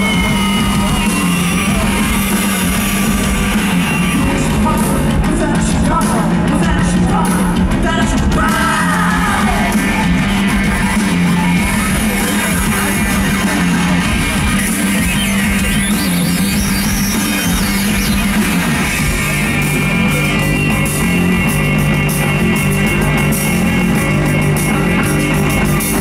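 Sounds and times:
man singing and shouting: 0:00.0 - 0:15.9
heavy bass line: 0:00.0 - 0:26.0
live rock band playing: 0:00.0 - 0:26.0.

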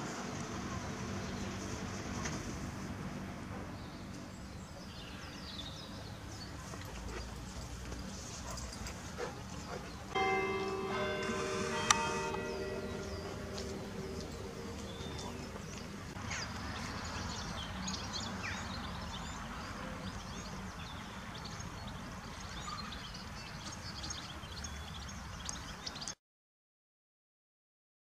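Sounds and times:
small birds chirping and singing: 0:03.7 - 0:26.2
church bell ringing: 0:10.1 - 0:16.2.

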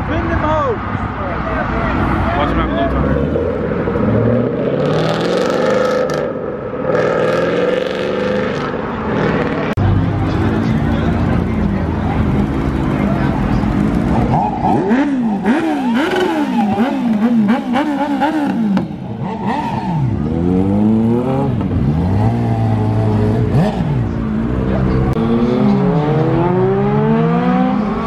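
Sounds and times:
motorcycle engines revving: 0:00.0 - 0:28.0.

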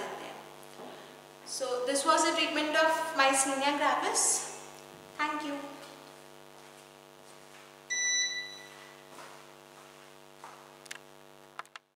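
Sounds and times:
electrical hum: 0:00.0 - 0:12.0
electronic beep: 0:07.9 - 0:08.8.

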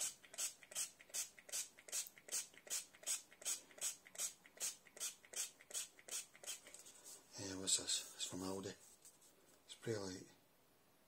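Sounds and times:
spray bottle hissing: 0:00.0 - 0:06.8.

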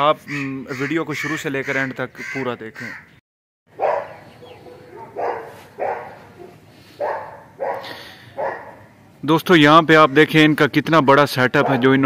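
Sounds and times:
dog barking: 0:03.8 - 0:08.9, 0:11.6 - 0:12.0.

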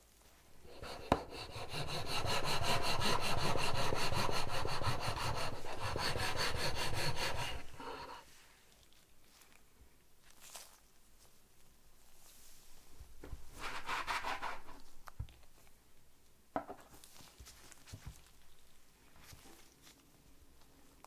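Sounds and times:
wire sawing through cake: 0:00.7 - 0:08.2.

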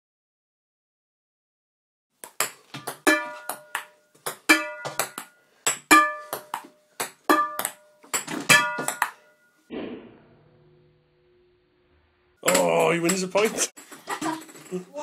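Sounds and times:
ping-pong ball clicks: 0:02.2 - 0:09.4
metallic ping of frying pan: 0:05.9 - 0:06.4, 0:07.3 - 0:07.8.

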